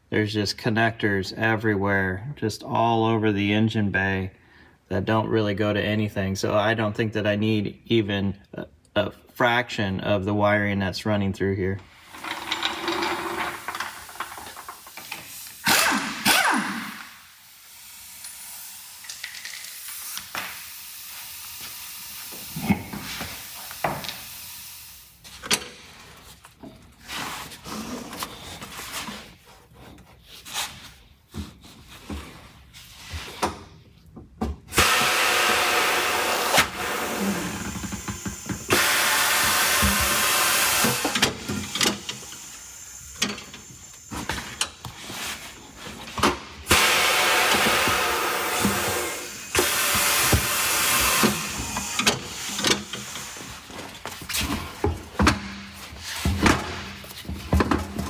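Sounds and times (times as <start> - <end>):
compressed-air hiss: 34.7 - 46.0, 46.6 - 53.7.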